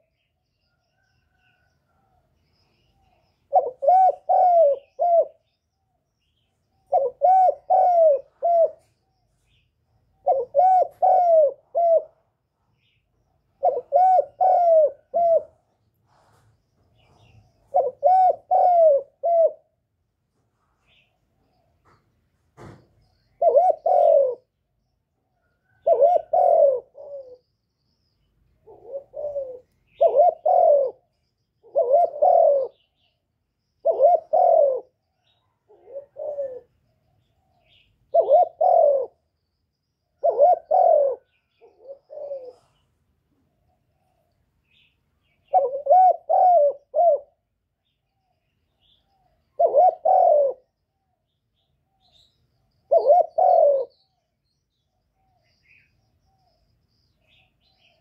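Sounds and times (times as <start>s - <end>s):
dove cooing: 2.9s - 5.6s, 6.7s - 12.4s, 13.5s - 16.2s, 17.0s - 19.9s, 23.3s - 24.7s, 25.4s - 27.5s, 28.6s - 33.2s, 33.8s - 39.3s, 40.1s - 47.6s, 48.3s - 50.8s, 52.0s - 54.2s.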